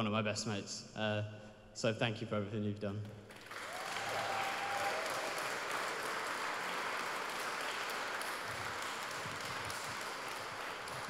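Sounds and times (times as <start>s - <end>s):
guests applauding: 3.3s - 11.0s.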